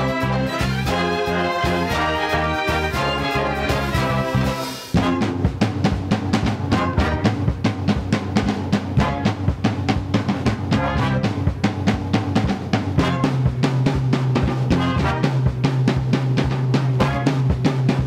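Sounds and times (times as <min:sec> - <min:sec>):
sustained instruments melody: 0:00.0 - 0:05.6
drum beat with low tones: 0:00.0 - 0:18.0.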